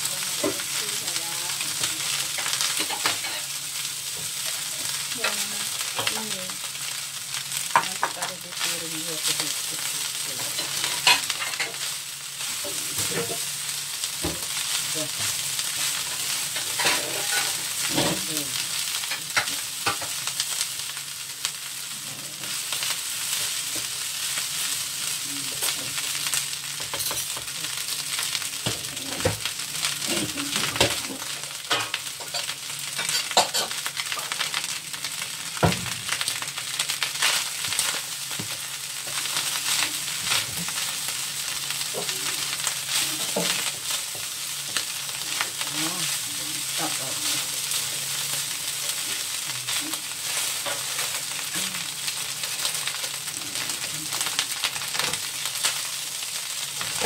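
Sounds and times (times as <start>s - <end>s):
rice sizzling in a wok: 0.0s - 57.0s
spatula scraping a pan: 16.2s - 18.0s.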